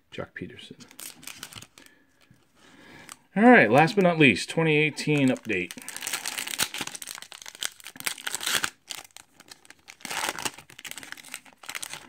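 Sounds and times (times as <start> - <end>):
foil wrapper tearing and crinkling: 0.9 - 1.9, 5.0 - 12.0.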